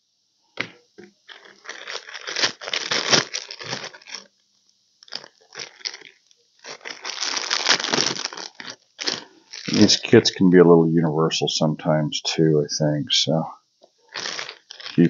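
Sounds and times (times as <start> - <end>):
plastic bags crinkling: 1.0 - 4.3, 5.0 - 10.2, 14.1 - 15.0.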